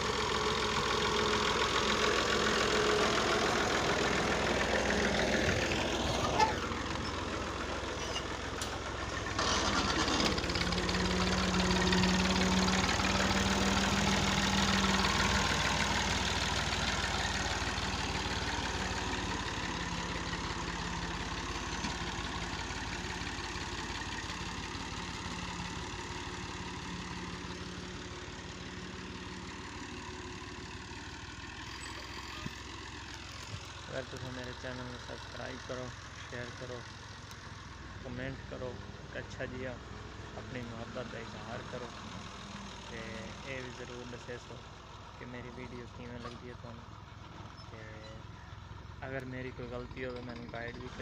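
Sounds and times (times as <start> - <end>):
tractor diesel engine: 0.0 - 51.0
blade dragging over dirt: 9.2 - 10.7.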